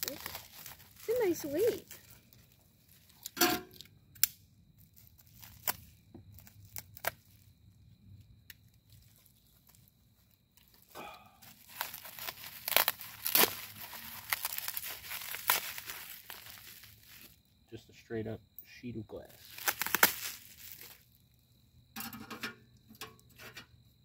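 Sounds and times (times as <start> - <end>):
foam packing wrap crinkling: 0.0 - 3.4, 4.8 - 7.5, 8.8 - 17.4, 19.3 - 21.1.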